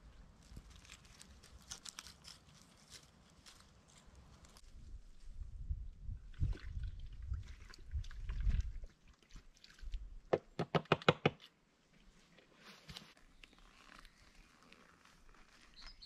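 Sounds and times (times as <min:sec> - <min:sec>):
sharp knocks of rocks: 0:10.3 - 0:11.4.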